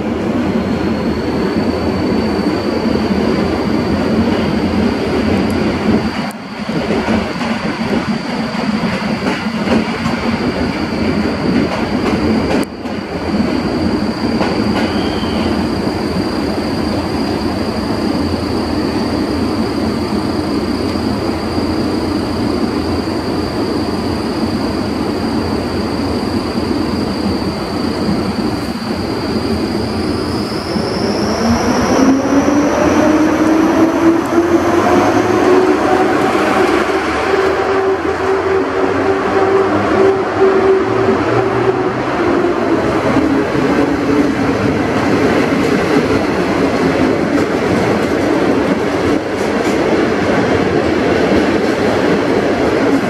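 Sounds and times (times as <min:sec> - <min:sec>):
electric locomotive whine: 0:00.0 - 0:53.0.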